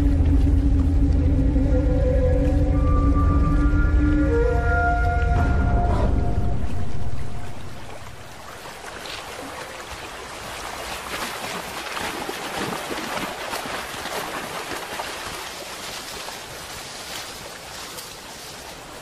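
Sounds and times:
water splashing around wading bear: 4.2s - 19.0s.

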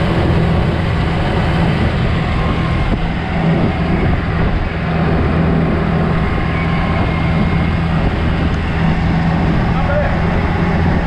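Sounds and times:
car engine running: 0.0s - 11.0s
road and wind noise: 0.0s - 11.0s.

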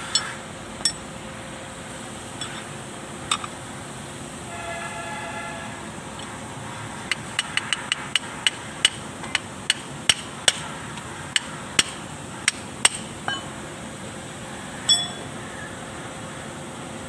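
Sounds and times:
ringing metallic taps: 12.8s - 13.5s, 14.9s - 15.3s.

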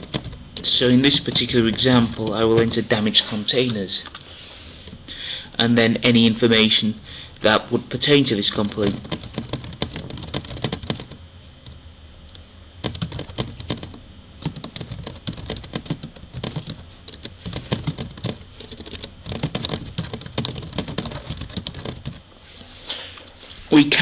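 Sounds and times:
typing on computer keyboard: 0.0s - 2.8s, 8.5s - 11.2s, 12.8s - 22.2s.

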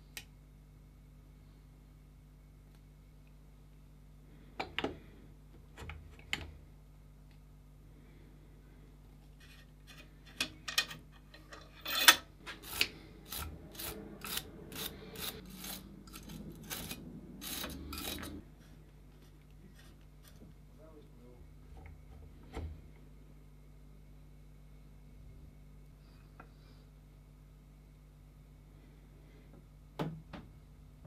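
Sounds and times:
metal nut scraping and clicking: 9.8s - 18.4s.

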